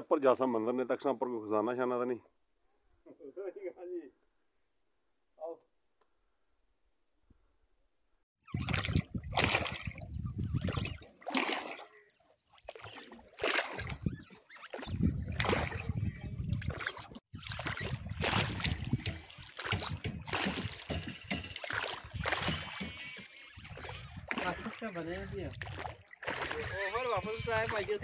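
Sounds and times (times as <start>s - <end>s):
oar splashing through water: 8.5s - 28.0s.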